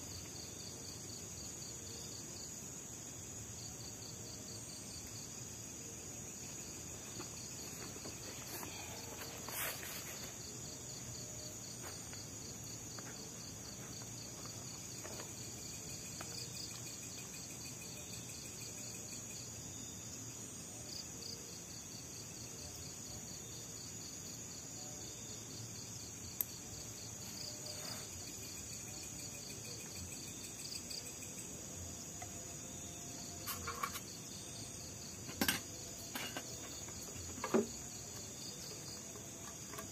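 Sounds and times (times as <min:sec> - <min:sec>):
night insects chirring: 0:00.0 - 0:39.9
camp gear clicks and knocks: 0:33.4 - 0:34.2, 0:35.2 - 0:39.9.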